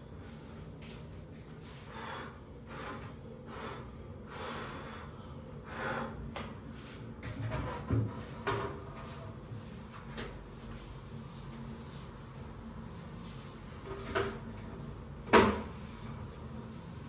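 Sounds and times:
cloth wiping surfaces: 15.7s - 17.0s.

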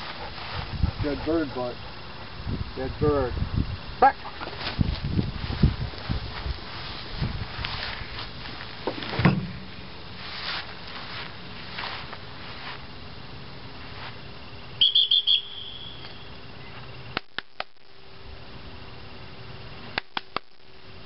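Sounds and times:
dog whistle pips: 14.8s - 16.2s
sharp clicks: 17.1s - 17.8s, 19.9s - 20.7s.

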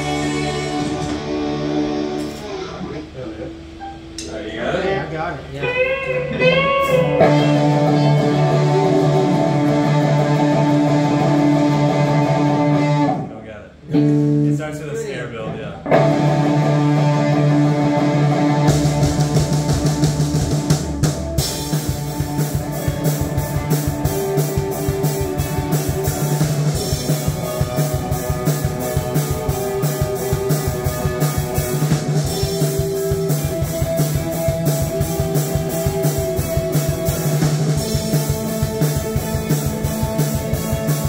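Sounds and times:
drum kit fast beat: 0.0s - 2.6s, 6.5s - 13.1s, 15.9s - 41.0s
electric guitar: 0.0s - 14.6s, 15.4s - 41.0s.

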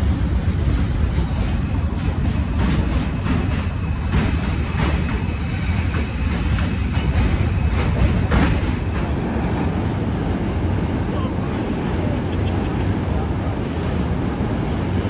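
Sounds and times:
wheels clanking on track: 0.0s - 9.8s
train rumbling: 0.0s - 15.0s
high squeal: 2.5s - 9.2s.

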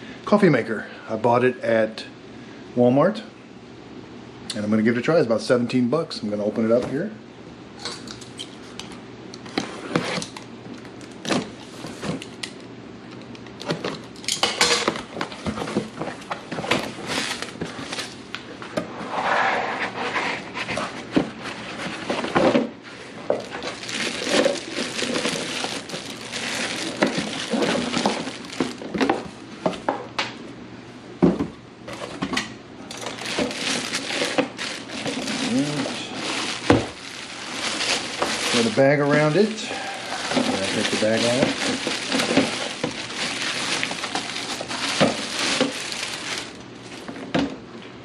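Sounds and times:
cardboard scraping and rustling: 9.5s - 10.4s, 15.1s - 29.9s, 32.9s - 47.4s
plastic bag crinkling: 15.6s - 18.3s, 23.2s - 29.3s, 32.9s - 47.2s.

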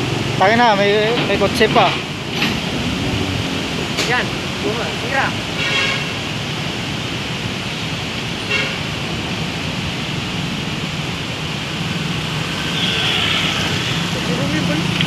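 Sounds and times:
traffic engines running: 0.0s - 15.0s
car horn toot: 5.6s - 6.2s, 8.5s - 8.8s.

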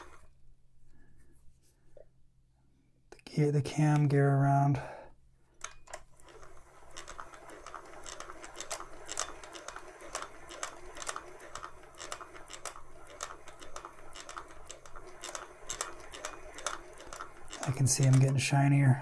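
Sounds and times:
sewing machine cam gear clicking: 0.0s - 0.3s, 5.6s - 18.9s.

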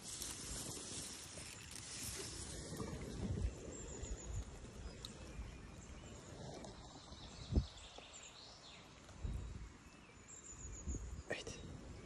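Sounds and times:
light rain: 0.0s - 4.0s.

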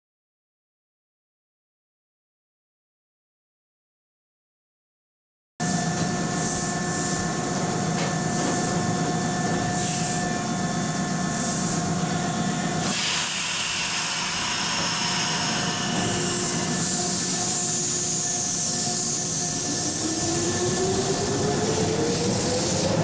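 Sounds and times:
electric train equipment humming: 5.6s - 23.0s.

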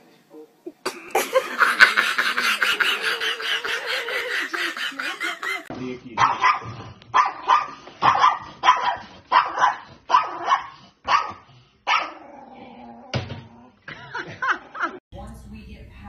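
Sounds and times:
small dog barking: 6.2s - 12.2s.

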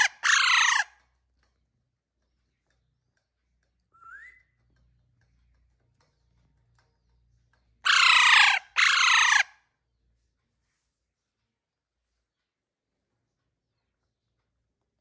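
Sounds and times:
parakeet harsh squawks: 0.0s - 1.0s, 7.8s - 9.6s.

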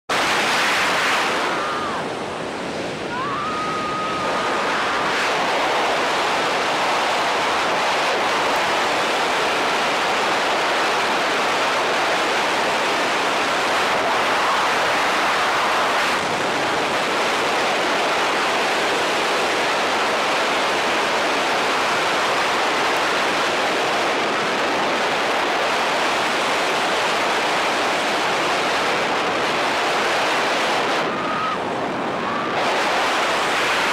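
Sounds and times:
wind rushing over microphone: 0.1s - 33.9s.

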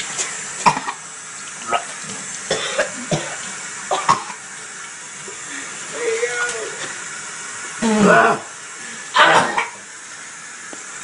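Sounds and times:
person coughing: 2.5s - 4.4s, 9.2s - 9.8s.

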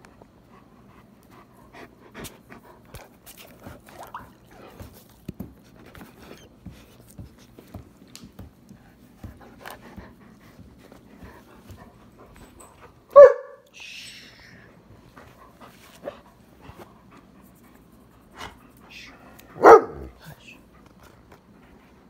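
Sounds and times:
dog panting: 0.0s - 13.2s, 14.9s - 22.0s.

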